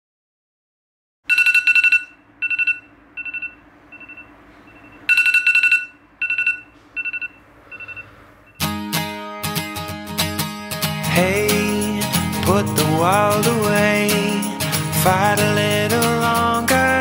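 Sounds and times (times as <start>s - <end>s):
phone alarm trilling beep: 1.3s - 8.6s.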